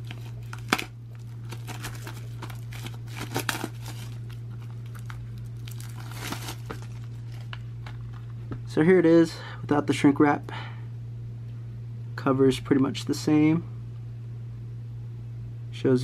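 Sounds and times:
plastic wrap tearing: 0:00.0 - 0:08.3
plastic wrap crinkling: 0:00.0 - 0:08.4.

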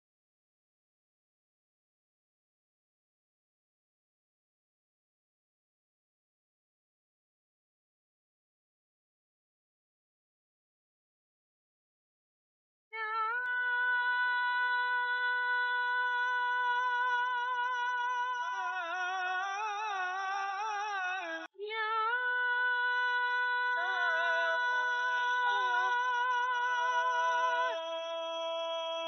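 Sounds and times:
lower voice singing with vibrato: 0:13.0 - 0:29.0
high voice holding long note: 0:22.4 - 0:29.0.

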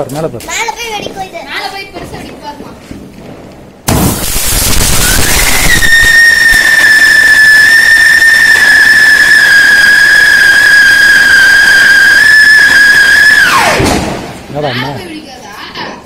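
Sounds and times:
whistling firework spraying sparks: 0:03.9 - 0:14.3.

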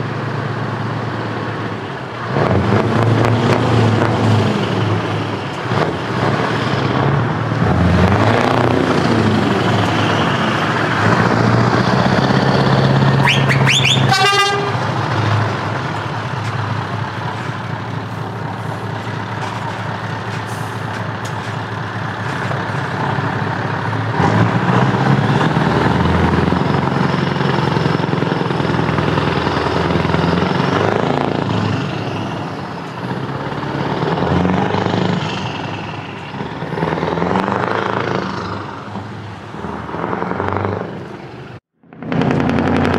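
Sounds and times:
truck diesel engine revving: 0:00.0 - 0:42.9
truck horn blast: 0:13.2 - 0:15.0.

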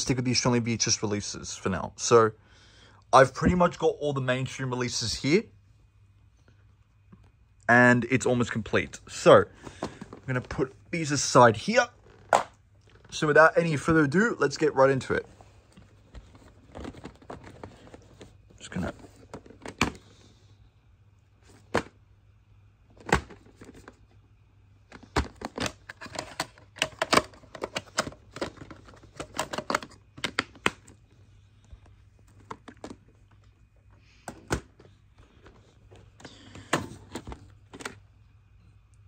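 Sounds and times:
plastic cases clicking: 0:24.9 - 0:31.0, 0:32.3 - 0:33.4.

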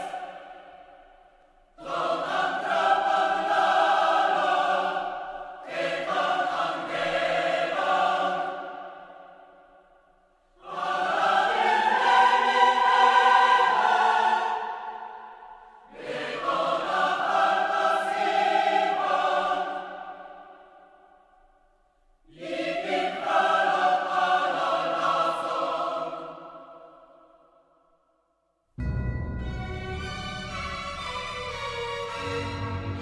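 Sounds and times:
choir singing held chords: 0:00.0 - 0:27.8.

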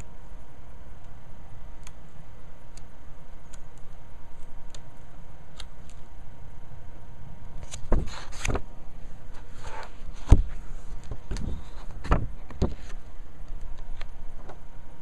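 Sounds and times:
paper rustle: 0:07.6 - 0:08.6.

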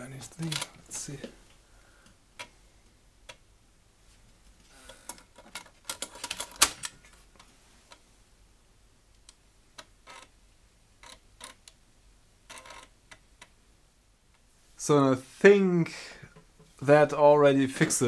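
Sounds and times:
floppy drive clicking: 0:12.4 - 0:13.6.

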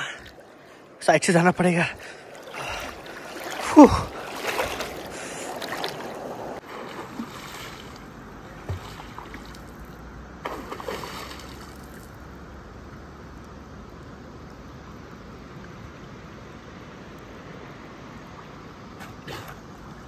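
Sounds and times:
water sloshing and splashing: 0:00.0 - 0:12.2.

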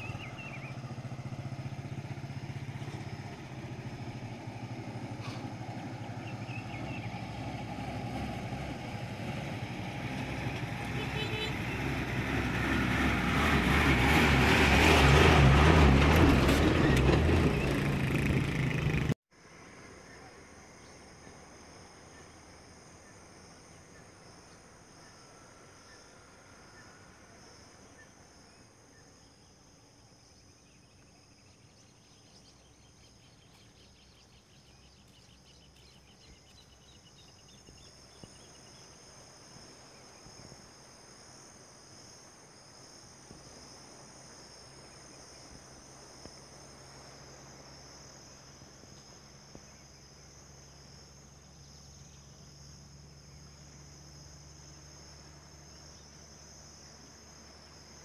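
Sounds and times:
insects trilling: 0:19.4 - 0:58.0.

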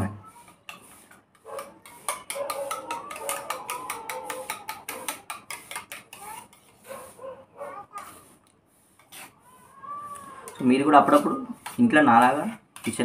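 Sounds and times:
spoon clinking in metal bowl: 0:01.7 - 0:06.2.

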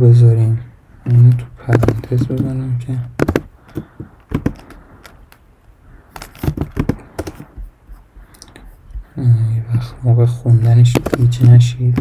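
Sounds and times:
computer keyboard typing: 0:03.2 - 0:04.8, 0:06.2 - 0:07.6, 0:10.6 - 0:12.0.

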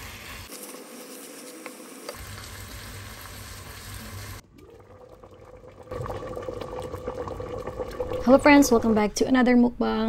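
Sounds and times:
food sizzling in a hot pan: 0:00.0 - 0:04.4.

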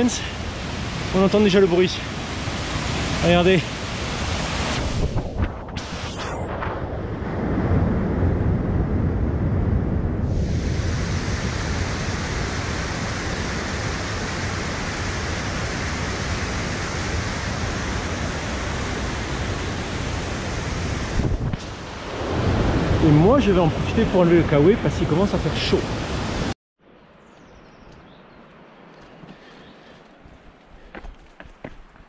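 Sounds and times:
waterfall rushing over boulders: 0:00.0 - 0:05.0, 0:10.9 - 0:21.3.

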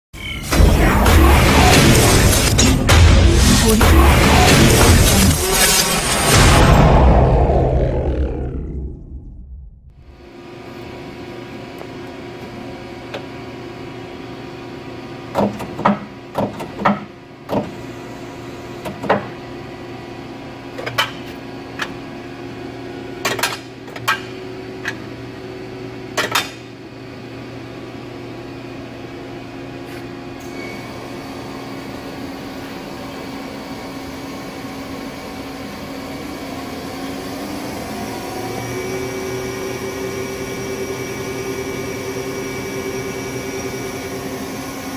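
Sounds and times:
high spindle whine: 0:36.1 - 0:44.9.

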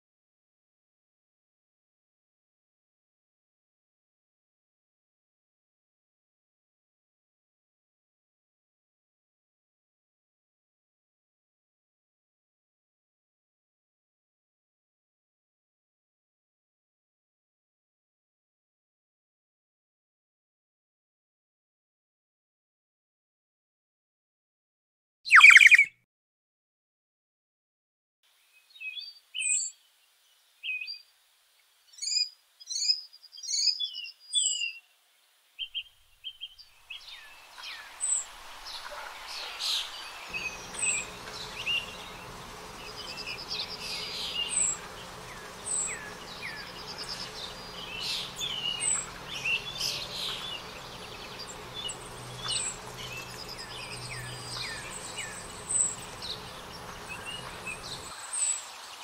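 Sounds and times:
small birds chirping: 0:25.3 - 0:26.0, 0:28.5 - 0:31.1, 0:31.8 - 0:59.0
steady background hiss: 0:34.8 - 0:59.0.

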